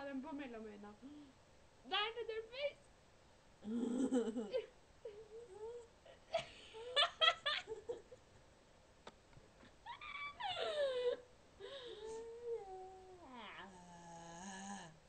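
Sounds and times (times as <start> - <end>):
young women laughing: 6.2 - 8.2, 9.8 - 11.3.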